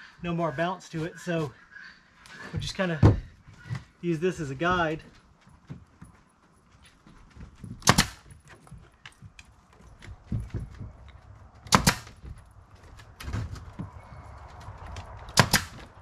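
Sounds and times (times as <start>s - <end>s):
nail gun firing into wood: 7.8s - 8.3s, 11.6s - 12.2s, 15.3s - 15.9s.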